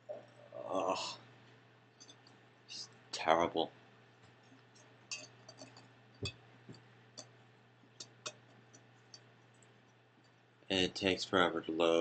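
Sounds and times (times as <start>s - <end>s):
low steady hum: 0.0s - 12.0s
faint irregular clicks: 1.4s - 3.0s, 4.1s - 10.7s.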